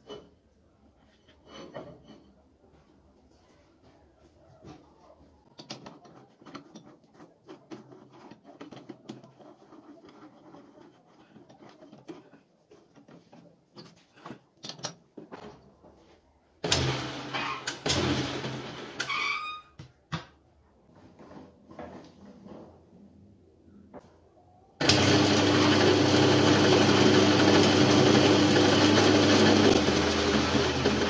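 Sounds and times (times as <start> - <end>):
metal clicks and scrapes: 5.5 - 15.0.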